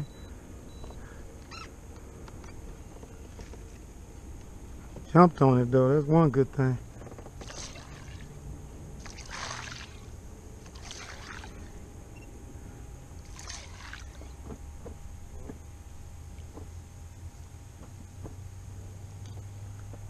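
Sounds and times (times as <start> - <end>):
fish splashing at the surface: 7.4 - 8.4, 9.0 - 11.8, 13.2 - 14.4.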